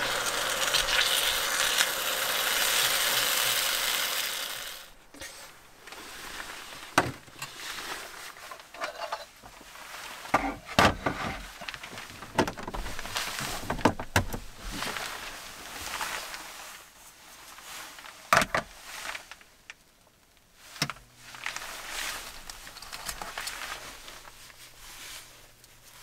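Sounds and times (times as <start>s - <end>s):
pasta sizzling in a pan: 0.0s - 5.0s.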